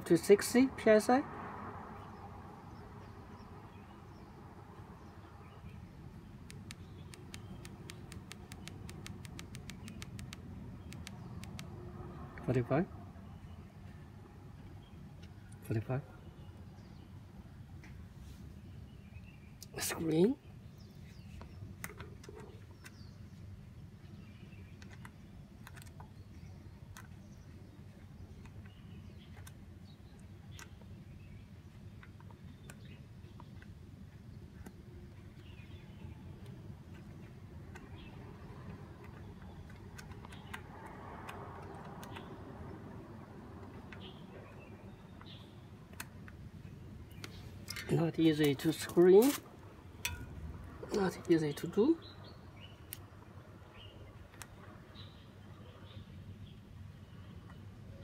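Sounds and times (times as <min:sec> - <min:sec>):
low steady outdoor hum: 0:00.0 - 0:58.0
button ticking rapidly: 0:06.4 - 0:11.7
hose connector clicks and taps: 0:06.4 - 0:11.7.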